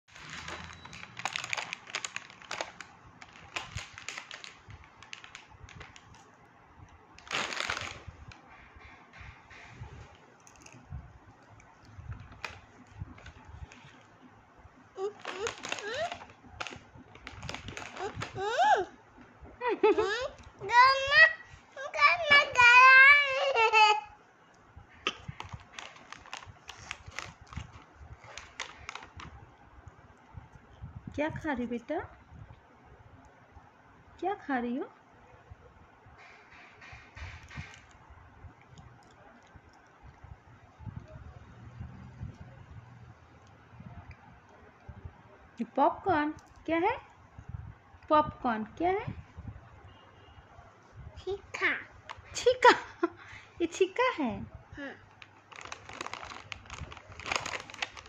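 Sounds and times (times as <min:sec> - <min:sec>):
plastic packet crinkling: 0:00.1 - 0:06.2, 0:07.2 - 0:08.4, 0:12.2 - 0:14.1, 0:15.0 - 0:18.6, 0:25.1 - 0:29.3, 0:55.1 - 0:58.0.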